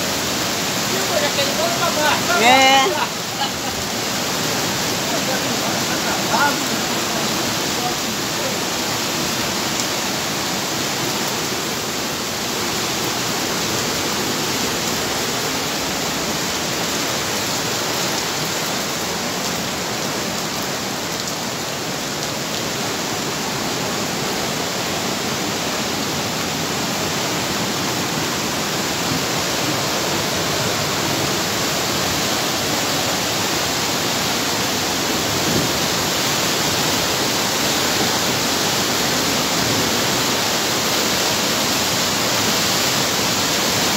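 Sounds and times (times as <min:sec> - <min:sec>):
stream in flood rushing: 0:00.0 - 0:43.9.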